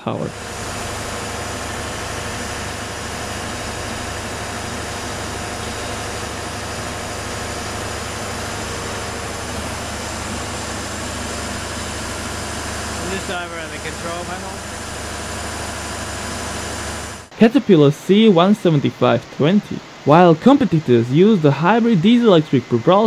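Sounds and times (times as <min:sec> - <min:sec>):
diesel engine running steadily: 0:00.0 - 0:17.3.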